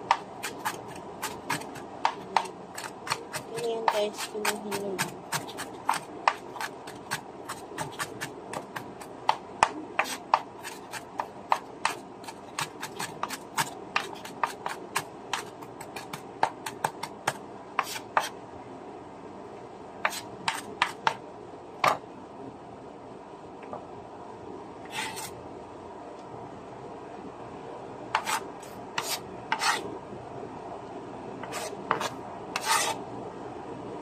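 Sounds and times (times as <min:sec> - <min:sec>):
knife chopping on cutting board: 0:00.1 - 0:18.3, 0:20.0 - 0:21.2, 0:28.2 - 0:28.4, 0:29.0 - 0:29.8, 0:31.4 - 0:33.0.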